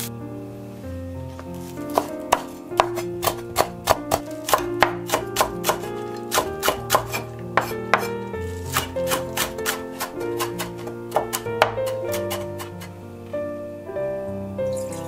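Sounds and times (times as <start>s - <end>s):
background music with held notes: 0.0s - 15.0s
knife chopping on wooden board: 1.9s - 12.9s.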